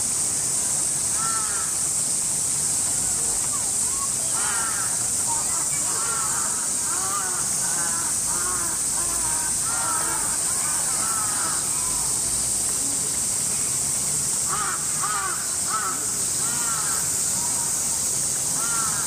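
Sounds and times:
cicadas droning: 0.0 - 19.0
crows cawing: 1.2 - 1.8, 4.3 - 5.0, 5.8 - 11.8, 14.5 - 17.2, 18.6 - 19.0.

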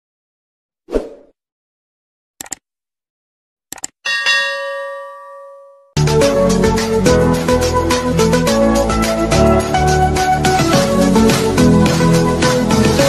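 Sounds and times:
notification bell ding: 4.1 - 6.0.

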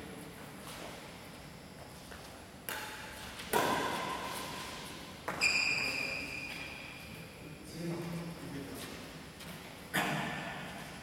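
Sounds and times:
rackets hitting shuttlecock: 2.7 - 5.8.

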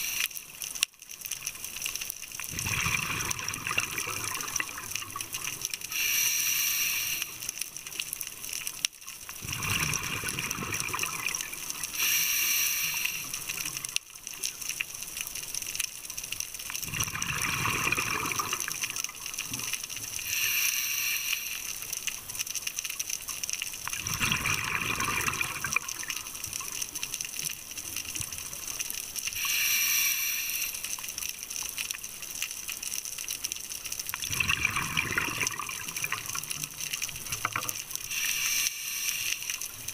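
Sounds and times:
exhaled bubbles gurgling: 2.4 - 7.4, 9.3 - 14.0, 16.8 - 21.6, 23.8 - 28.7, 34.2 - 39.9
hissing regulator inhalation: 5.9 - 7.5, 11.9 - 13.4, 20.2 - 21.8, 29.4 - 31.0, 38.1 - 39.7.

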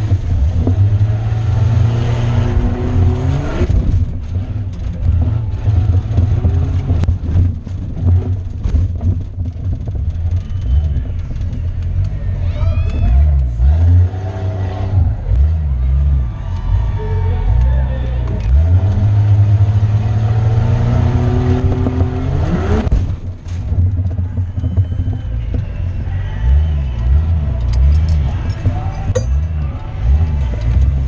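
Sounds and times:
truck engine revving: 0.0 - 31.0
truck knocks and rattles: 3.5 - 12.2, 21.2 - 31.0.

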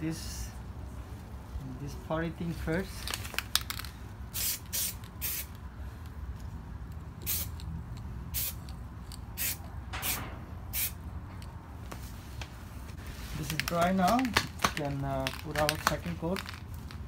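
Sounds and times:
aerosol spray can hissing: 4.4 - 5.5, 7.2 - 7.6, 8.4 - 8.6, 9.4 - 11.0.

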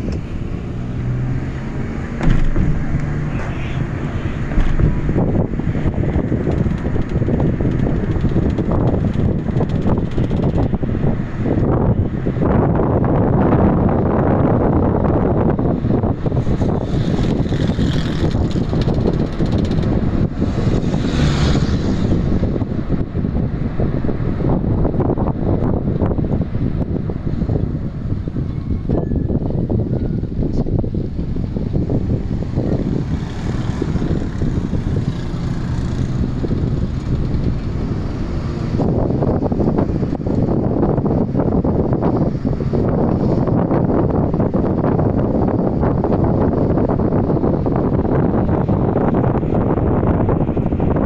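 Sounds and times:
road and traffic noise: 0.0 - 51.0
wind rumbling on microphone: 0.0 - 51.0
truck passing close by: 20.3 - 23.5.

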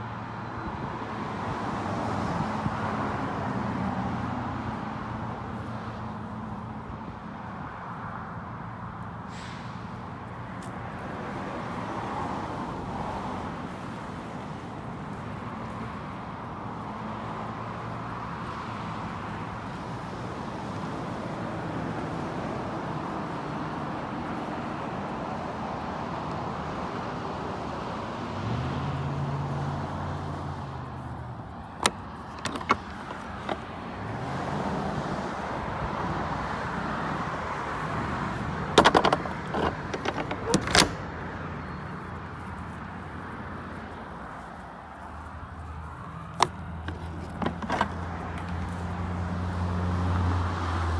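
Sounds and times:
trailer latch clicking: 31.8 - 33.7, 38.7 - 41.2, 46.4 - 48.5.

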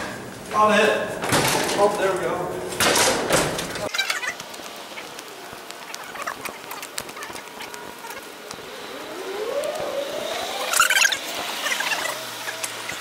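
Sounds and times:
footsteps: 0.0 - 13.0
wheelchair wheels clicking on pavement: 3.7 - 8.9
rising whine: 4.9 - 13.0
high squeal: 7.2 - 13.0.

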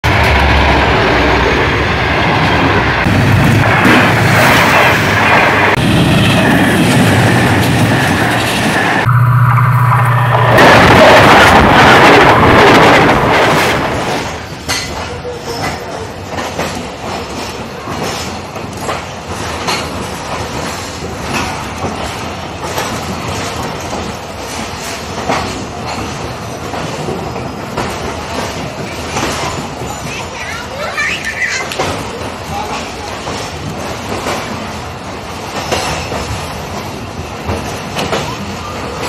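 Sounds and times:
diesel locomotive rumbling past: 0.0 - 18.6
train wheels clacking over rail joints: 10.6 - 39.0.

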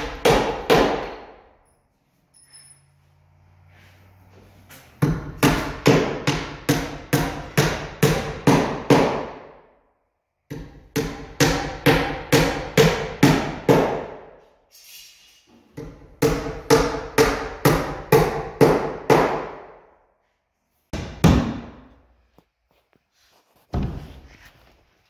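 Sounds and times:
hammer driving nails: 0.0 - 1.4, 5.0 - 9.6, 10.5 - 14.3, 15.8 - 19.8.

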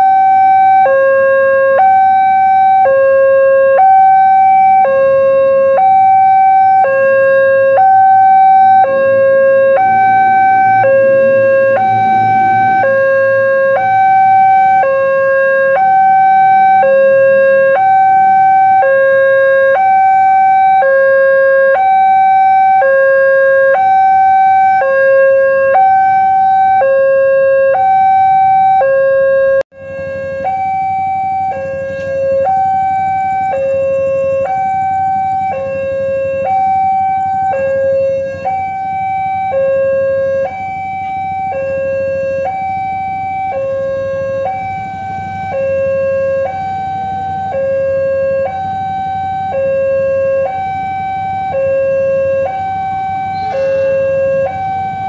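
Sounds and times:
two-tone level-crossing alarm: 0.0 - 55.0
passing train rumble: 8.5 - 16.2, 29.8 - 47.8, 52.5 - 55.0.

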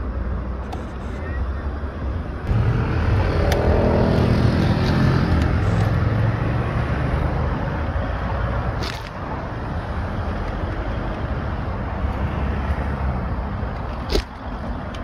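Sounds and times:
city street traffic: 0.0 - 15.0
car engine running: 2.4 - 6.2.

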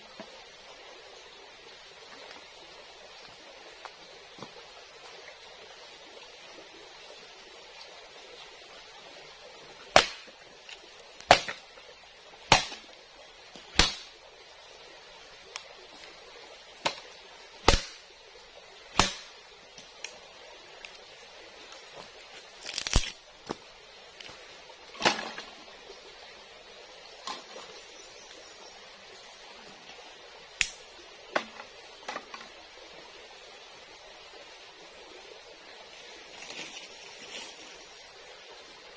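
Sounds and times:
dry bamboo snapping: 9.9 - 10.3, 11.2 - 11.6, 12.5 - 12.9, 13.7 - 14.1, 17.7 - 18.0, 19.0 - 20.2, 22.6 - 23.2, 30.6 - 30.8.

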